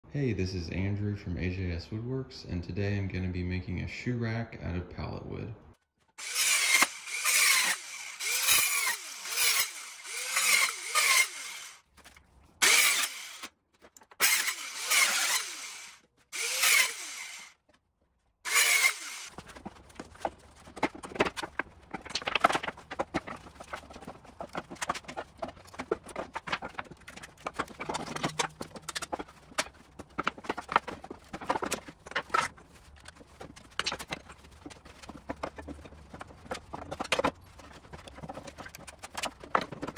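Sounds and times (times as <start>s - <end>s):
circular saw cutting wood: 6.2s - 11.8s, 12.6s - 13.5s, 14.2s - 17.6s, 18.5s - 19.4s.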